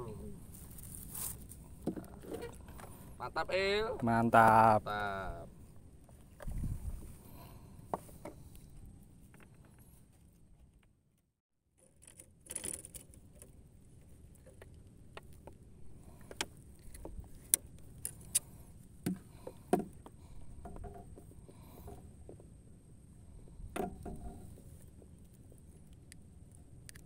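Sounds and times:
fish clicks and knocks in boat: 11.8 - 22.6.

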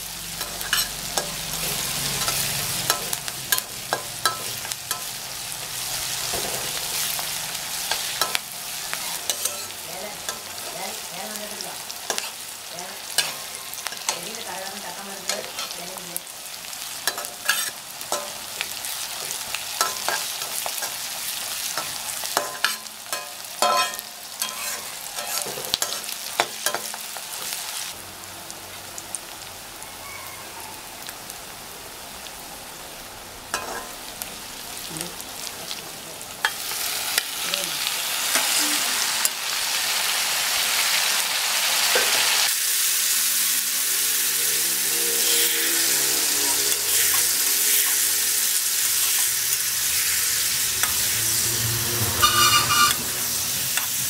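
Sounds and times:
onions sizzling in oil: 0.0 - 54.0
spatula scraping metal pan: 0.4 - 5.1, 9.0 - 10.5, 17.1 - 18.3, 21.8 - 26.0, 50.4 - 54.0.

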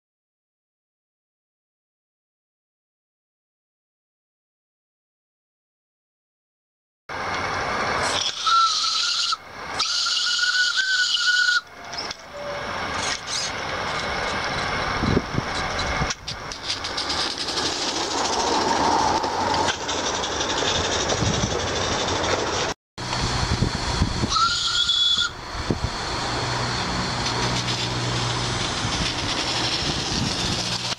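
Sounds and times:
wheels clattering on track: 7.2 - 23.4, 25.5 - 30.9
hiss of steam: 8.0 - 11.6
steam whistle blasts: 8.2 - 12.7, 24.2 - 25.4.

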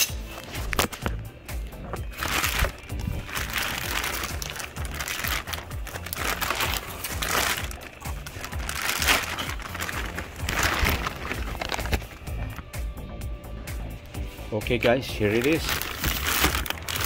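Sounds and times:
background music: 0.0 - 17.0
packaging crinkling: 1.8 - 12.7, 15.2 - 17.0.

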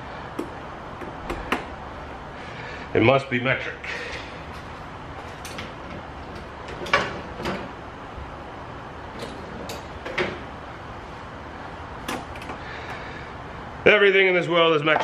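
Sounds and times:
tools knocking and clinking: 5.3 - 7.7.

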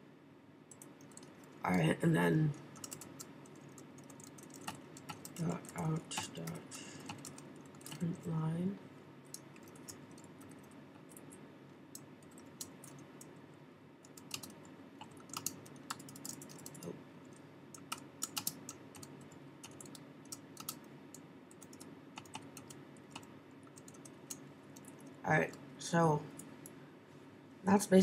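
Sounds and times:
faint steady hum: 0.0 - 28.0
keyboard typing: 0.7 - 1.7, 2.5 - 8.3, 9.3 - 13.4, 14.0 - 25.6.

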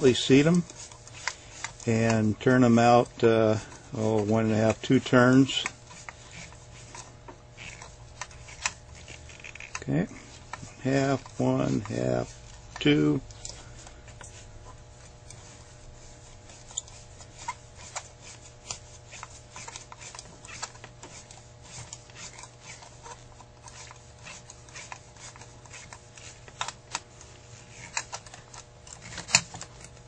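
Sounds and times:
steady low hum: 0.0 - 30.0
screwdriver clicks and scrapes: 0.3 - 2.2, 4.1 - 9.9, 16.4 - 30.0.

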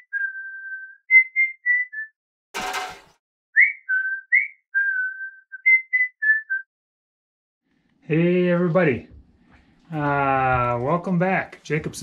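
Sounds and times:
person whistling a tune: 0.0 - 2.2, 3.6 - 6.7.

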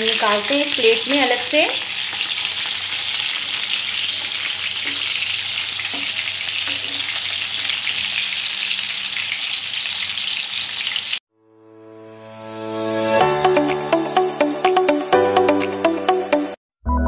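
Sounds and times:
meat sizzling in hot oil: 0.0 - 11.2.

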